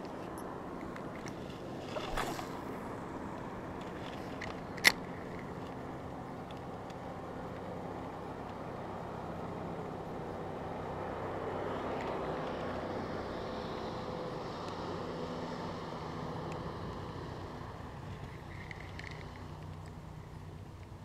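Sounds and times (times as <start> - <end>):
distant motorboat engine: 0.0 - 4.6.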